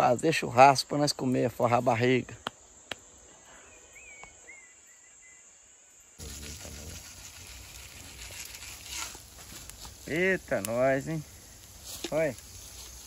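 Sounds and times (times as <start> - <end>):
night insects chirping: 0.0 - 13.0
steaks sizzling on a grill: 6.2 - 13.0.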